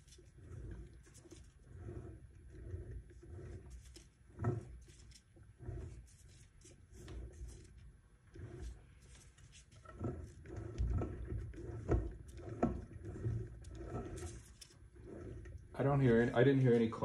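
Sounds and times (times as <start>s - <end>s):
torque converter rubbing: 0.0s - 17.0s.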